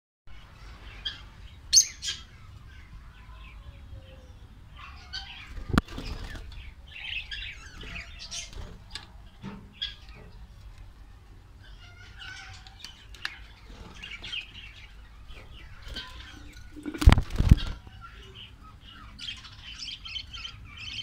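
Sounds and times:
budgerigars chirping: 0:04.8 - 0:08.6.

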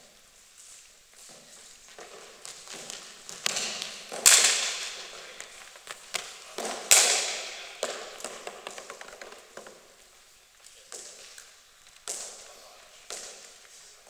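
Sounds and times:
cricket ball cracks echoing: 0:02.0 - 0:10.0, 0:10.9 - 0:12.5.

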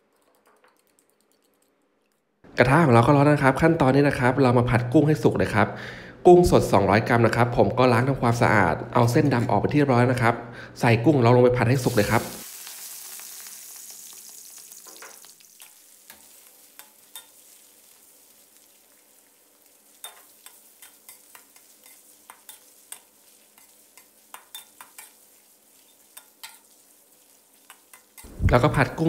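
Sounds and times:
shrimp sizzling in oil: 0:11.7 - 0:29.0.

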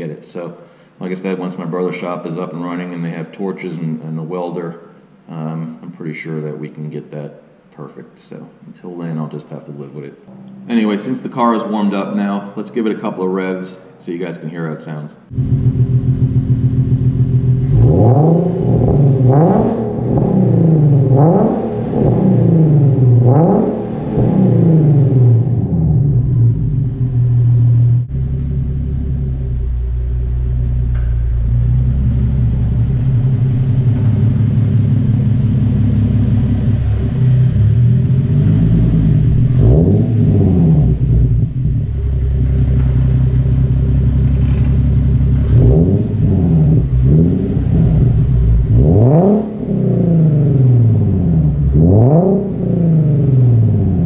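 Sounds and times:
car engine idling deeply: 0:15.3 - 0:54.0
car engine revving: 0:15.3 - 0:54.0.

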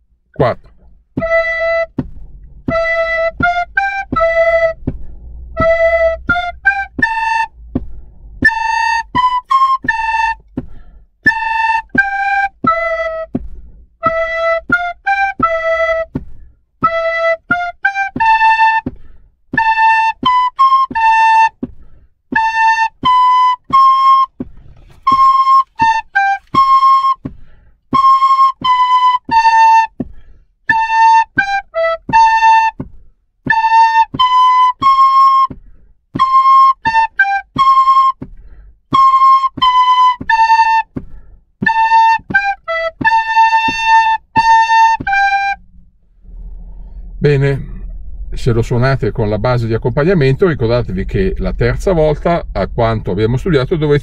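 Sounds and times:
recorders playing melody: 0:00.4 - 0:10.6, 0:14.0 - 0:16.2, 0:22.4 - 0:27.2.

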